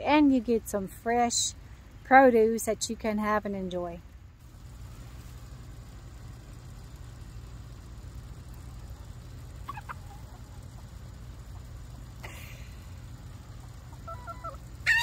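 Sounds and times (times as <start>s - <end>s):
steady low rumble: 0.0s - 15.0s
chickens clucking: 9.5s - 12.1s, 13.2s - 15.0s.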